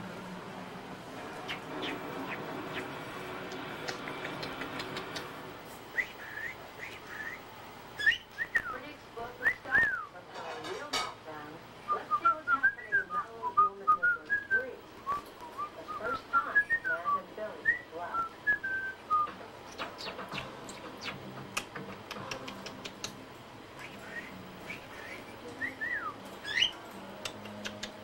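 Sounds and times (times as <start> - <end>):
sharp clicks: 3.5 - 5.4
cockatiel whistling and chirping: 8.0 - 8.8, 23.8 - 26.8.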